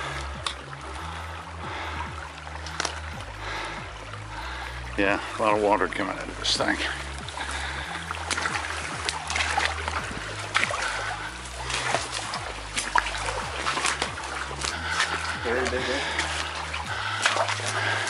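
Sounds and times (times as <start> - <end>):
stream water trickling and splashing: 0.0 - 18.0
footsteps crunching through dry grass: 6.3 - 18.0.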